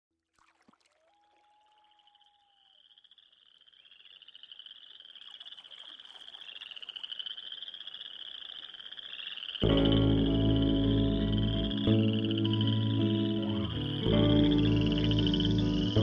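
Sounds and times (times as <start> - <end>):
drawn-out whistle: 1.0 - 2.9, 10.6 - 16.0
frogs calling: 1.8 - 16.0.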